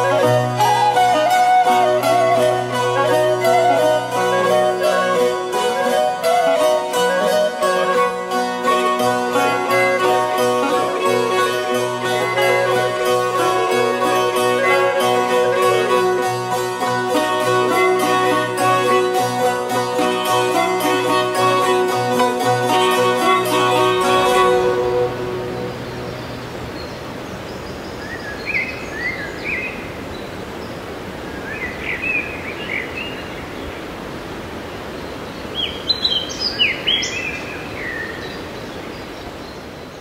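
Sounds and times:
droned zither folk tune: 0.0 - 27.4
songbird chirping: 23.0 - 34.0, 34.8 - 40.0.

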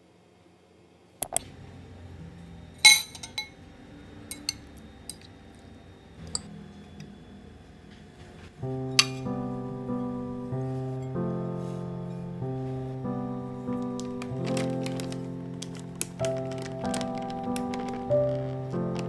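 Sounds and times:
soft piano music: 1.5 - 19.0
glass and ceramic clinking: 2.9 - 3.5.

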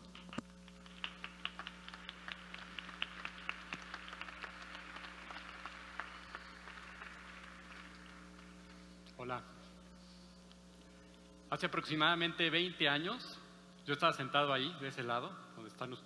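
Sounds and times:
steady electrical hum: 0.0 - 16.0
audience applauding: 0.2 - 8.8.

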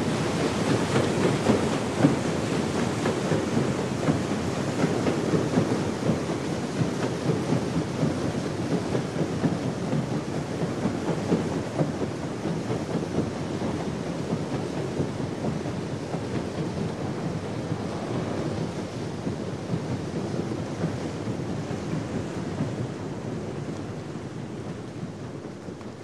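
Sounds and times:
paddle wheels churning water: 0.0 - 26.0.

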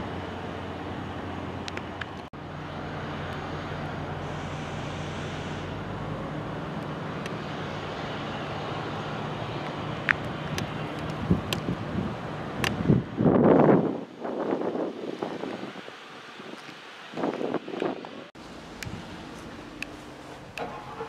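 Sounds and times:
low mechanical drone: 0.0 - 13.4
outdoor background noise: 0.0 - 21.0.

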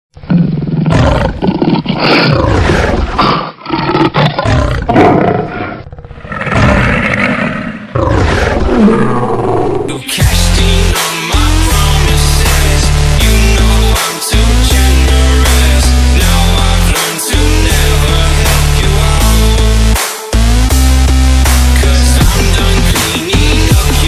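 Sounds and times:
animal roaring and growling: 0.2 - 10.0.

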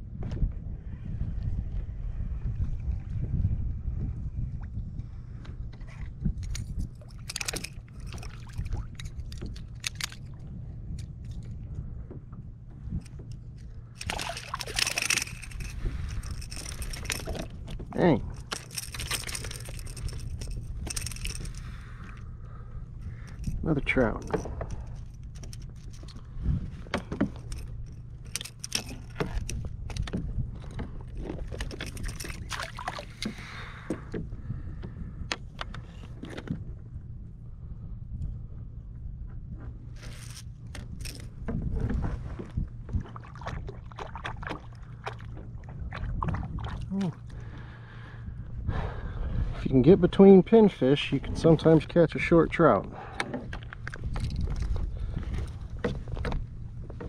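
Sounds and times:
steady low rumble: 0.0 - 57.0
water around a kayak: 0.0 - 57.0
fishing gear clicks and rattles: 6.2 - 11.7, 12.8 - 36.6, 39.8 - 48.1, 50.1 - 57.0
fish thrashing and splashing: 14.0 - 17.7, 18.3 - 21.9, 31.3 - 33.4.

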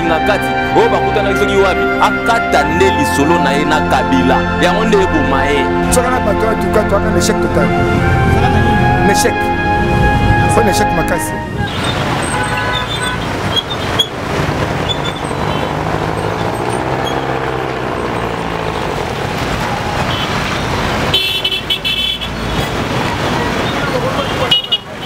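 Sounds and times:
passing vehicle engines: 0.0 - 25.0
car horn toots: 7.9 - 14.1, 19.2 - 22.7, 24.1 - 25.0.

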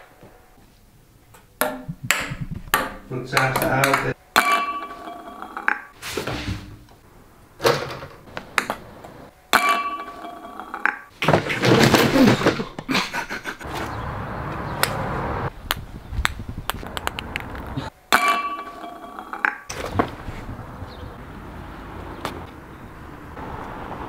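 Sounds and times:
ping-pong ball bouncing: 1.6 - 5.9, 8.6 - 8.8, 9.5 - 11.1, 18.1 - 19.7
ball clinking against glass: 2.8 - 5.9, 9.6 - 11.1, 18.2 - 19.7.

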